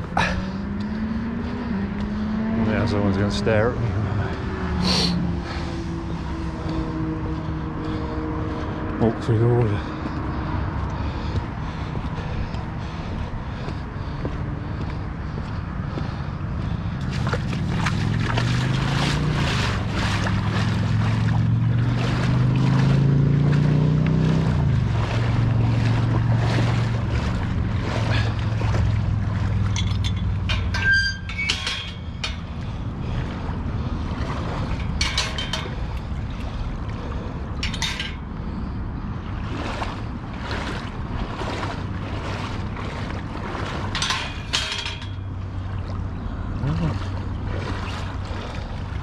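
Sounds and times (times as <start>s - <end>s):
low hum rising in pitch: 0.0s - 9.3s, 14.4s - 34.9s, 45.2s - 48.2s
splashing through flood water: 0.0s - 49.0s.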